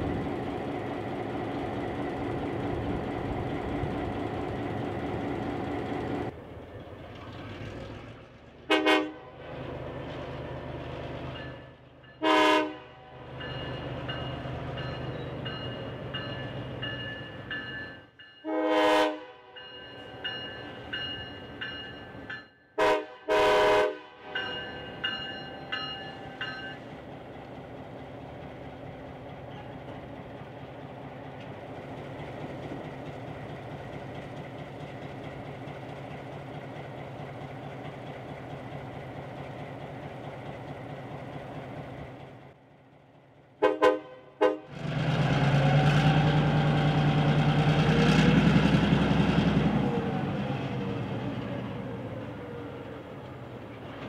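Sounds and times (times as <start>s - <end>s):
diesel locomotive engine running: 0.0s - 18.1s, 20.0s - 54.0s
air horn blasts: 8.7s - 9.3s, 12.2s - 13.1s, 18.5s - 19.5s, 22.8s - 24.3s, 43.6s - 44.7s.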